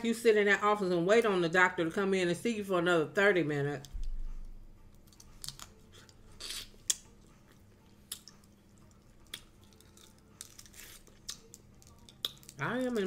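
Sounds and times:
shrimp shell peeling crackles: 0:04.9 - 0:07.1, 0:09.2 - 0:13.0.

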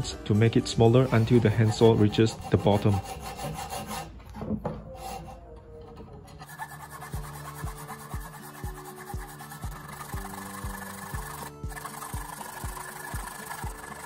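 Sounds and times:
hacksaw cutting metal: 0:01.0 - 0:04.2, 0:06.0 - 0:14.0
upbeat acoustic music: 0:07.0 - 0:14.0.

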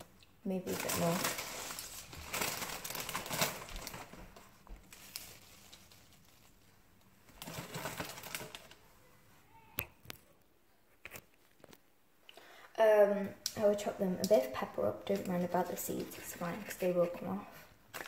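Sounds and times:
kale leaves rustling and crackling: 0:00.5 - 0:08.8.

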